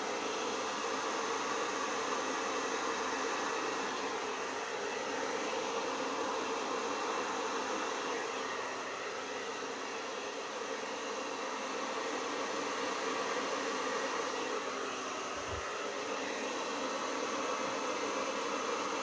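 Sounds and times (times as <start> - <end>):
hair dryer running: 0.0 - 19.0.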